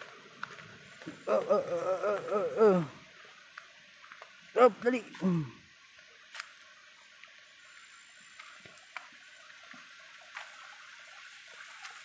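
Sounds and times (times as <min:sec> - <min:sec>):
footsteps on leafy trail: 0:00.0 - 0:02.6
distant rushing water: 0:00.0 - 0:12.0.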